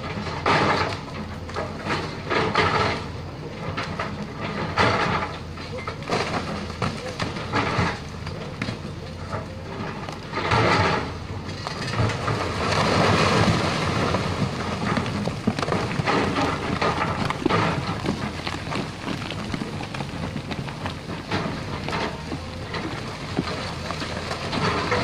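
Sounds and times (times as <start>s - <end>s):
excavator diesel engine under load: 0.0s - 25.0s
rock crunching and clattering: 0.0s - 25.0s
bucket scraping rock: 10.0s - 25.0s.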